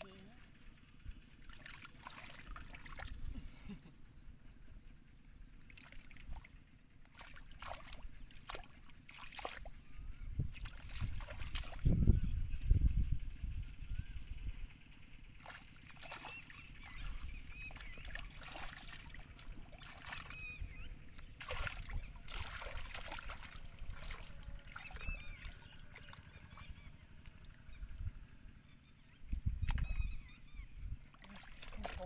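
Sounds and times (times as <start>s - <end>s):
splashing in shallow muddy water: 1.3s - 3.8s, 5.5s - 12.3s, 15.2s - 28.6s, 29.3s - 32.0s
faint high chirps: 8.8s - 32.0s
wind rumble on microphone: 9.7s - 15.2s, 19.2s - 28.6s, 29.2s - 31.3s.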